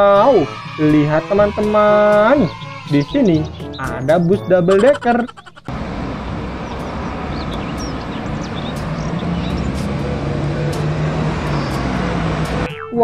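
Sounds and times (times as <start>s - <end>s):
bus engine drone: 4.6s - 12.7s
traffic noise: 4.6s - 12.7s.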